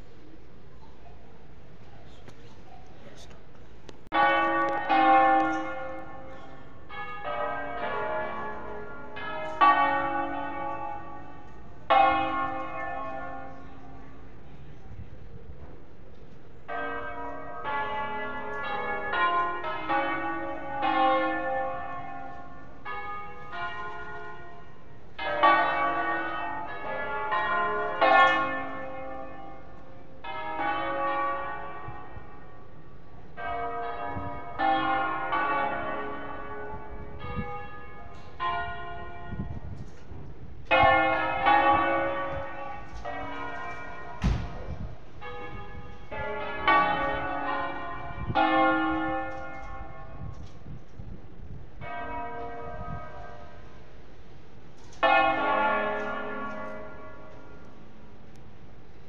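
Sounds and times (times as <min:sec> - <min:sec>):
church bells pealing: 0:04.1 - 0:15.2, 0:15.8 - 0:50.8, 0:51.4 - 0:59.0
sharp knock: 0:44.2 - 0:44.6.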